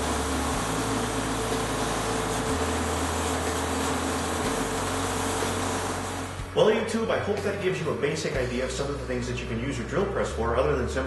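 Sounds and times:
drill press motor hum: 0.0s - 6.6s.

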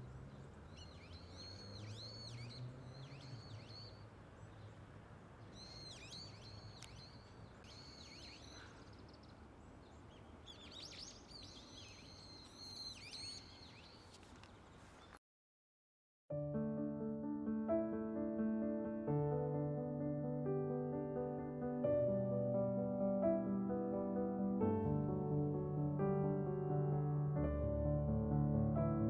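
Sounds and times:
outdoor background noise: 0.0s - 15.2s
small songbirds chirping: 0.0s - 15.2s.

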